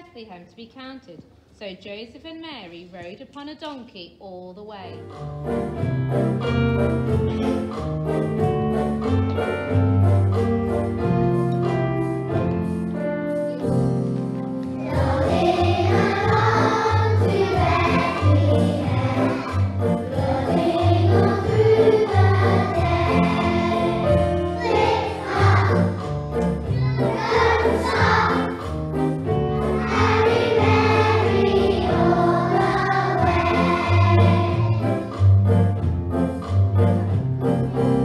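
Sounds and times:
christmas backing track: 4.7 - 38.0
children's choir singing: 14.8 - 28.8, 29.6 - 35.2.

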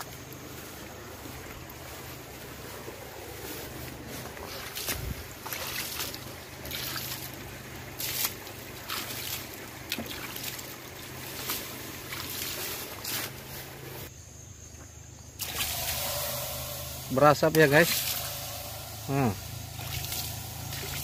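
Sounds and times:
low engine hum: 0.0 - 14.1, 15.4 - 21.0
water splashing on hot brakes: 3.5 - 14.0, 15.4 - 21.0
hissing: 15.4 - 21.0.

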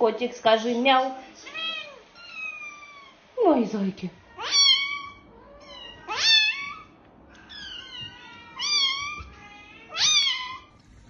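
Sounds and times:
kittens meowing: 1.5 - 3.2, 4.2 - 11.0.

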